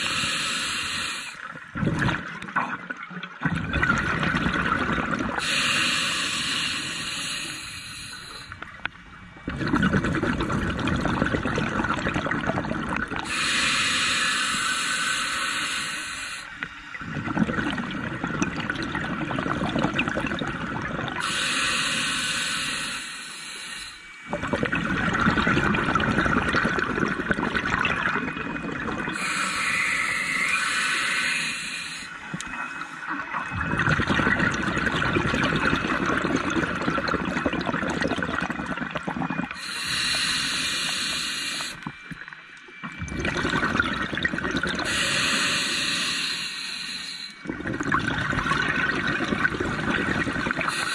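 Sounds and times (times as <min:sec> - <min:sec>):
regulator inhale hiss: 0:00.0 - 0:01.5, 0:05.4 - 0:08.6, 0:13.2 - 0:17.0, 0:21.2 - 0:24.3, 0:29.1 - 0:33.2, 0:39.5 - 0:42.0, 0:44.8 - 0:47.5, 0:50.6 - 0:50.9
exhaust bubbles gurgling: 0:01.6 - 0:05.5, 0:09.4 - 0:13.3, 0:17.0 - 0:21.3, 0:24.3 - 0:29.3, 0:32.3 - 0:40.1, 0:42.7 - 0:45.0, 0:47.4 - 0:50.9.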